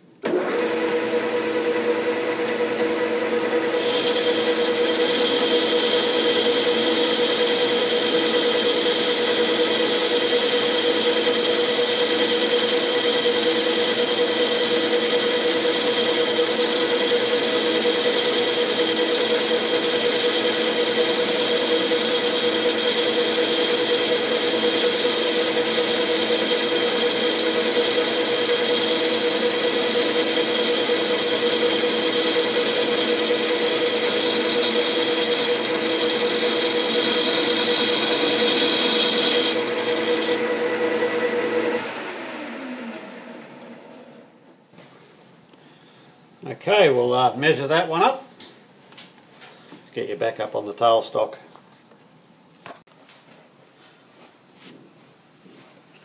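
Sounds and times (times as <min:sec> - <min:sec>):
lathe machine whine: 0:00.3 - 0:44.2.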